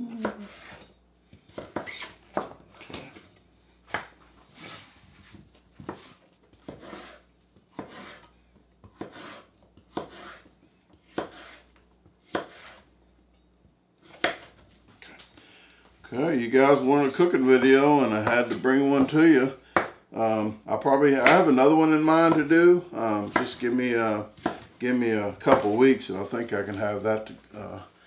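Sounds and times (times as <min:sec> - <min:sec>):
knife scraping: 0:00.2 - 0:01.0, 0:04.5 - 0:05.0, 0:05.9 - 0:12.9
knife chopping on cutting board: 0:00.2 - 0:03.2, 0:05.8 - 0:12.9, 0:14.0 - 0:14.7, 0:19.8 - 0:20.0, 0:21.2 - 0:21.5, 0:24.3 - 0:24.7, 0:25.5 - 0:25.8.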